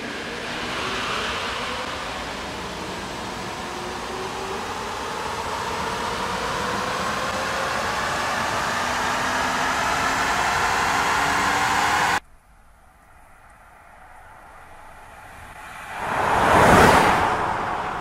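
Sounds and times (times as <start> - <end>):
faint whining tones: 0.0 - 18.0.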